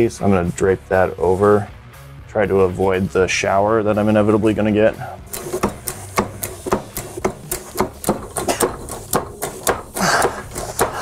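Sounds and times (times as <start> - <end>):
hand pump lever clicking and knocking: 5.3 - 11.0.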